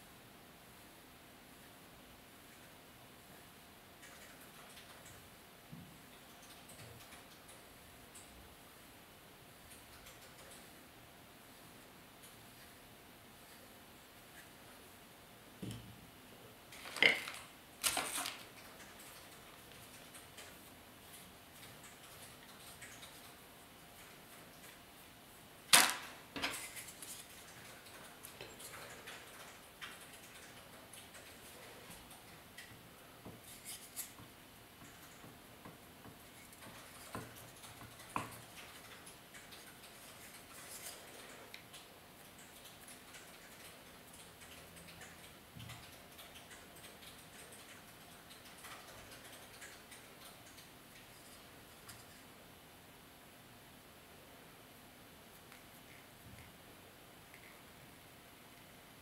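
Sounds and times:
faint light clicks and ticks: 26.4s - 52.3s.

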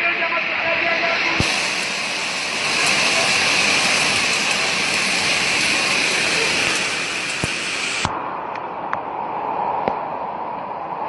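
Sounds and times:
floodwater rushing down street: 0.3s - 8.3s
hail and rain falling: 1.4s - 8.1s
hailstones ticking: 1.4s - 8.1s.

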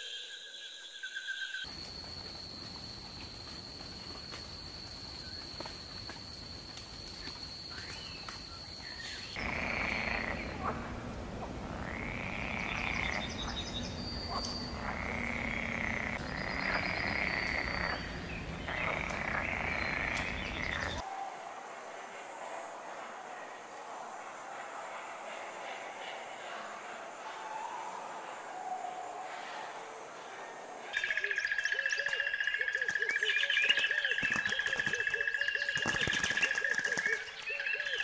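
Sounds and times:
croaking calls: 9.0s - 21.0s, 31.0s - 38.0s
high steady buzz: 9.4s - 21.0s.

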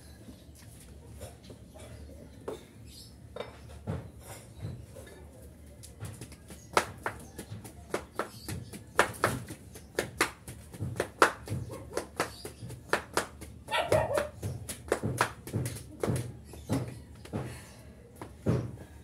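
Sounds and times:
flip-flops slapping on concrete: 5.7s - 19.0s
dog barking: 13.7s - 14.4s.

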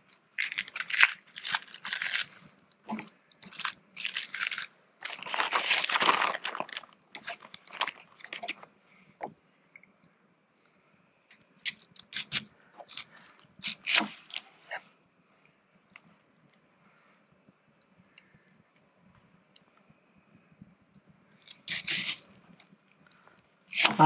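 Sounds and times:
onion crunching: 0.4s - 8.7s, 11.6s - 14.4s, 21.4s - 22.2s, 23.7s - 24.0s
onion skin rustling: 0.4s - 8.7s.

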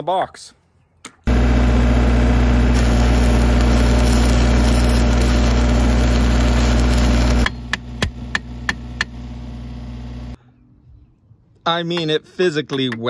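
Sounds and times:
welding arc hissing: 1.3s - 9.3s
welding machine hum: 1.3s - 10.4s.

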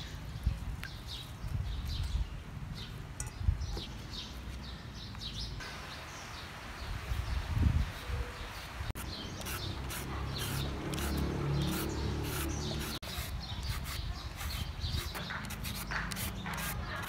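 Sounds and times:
peeler scraping mango: 9.0s - 17.0s.

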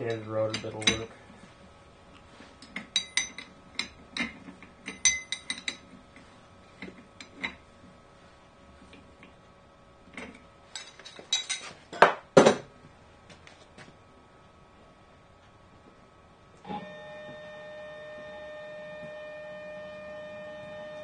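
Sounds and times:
wrenches clinking on metal: 0.0s - 1.1s.

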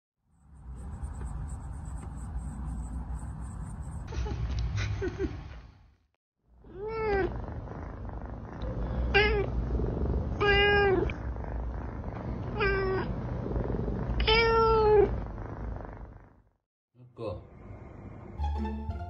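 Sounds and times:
cat meowing: 6.7s - 7.3s, 9.1s - 9.5s, 10.4s - 11.2s, 12.6s - 13.1s, 14.2s - 15.1s.

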